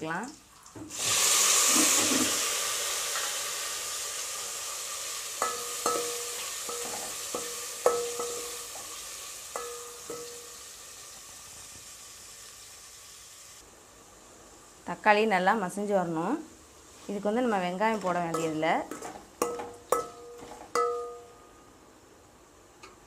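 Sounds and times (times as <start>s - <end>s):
tomatoes sizzling in hot oil: 0.0s - 21.4s
metal spoon knocking pot: 5.4s - 8.5s, 9.6s - 10.4s, 18.3s - 21.3s.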